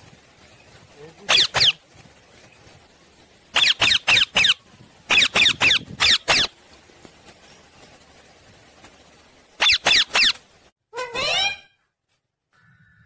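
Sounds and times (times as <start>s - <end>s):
parakeet screeching: 1.3s - 1.8s, 3.6s - 6.5s, 9.6s - 10.4s, 11.0s - 11.7s.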